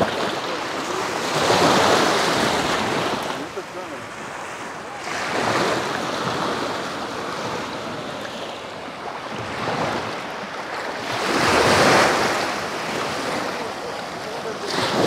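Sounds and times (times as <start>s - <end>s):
sea surf breaking: 0.0s - 15.0s.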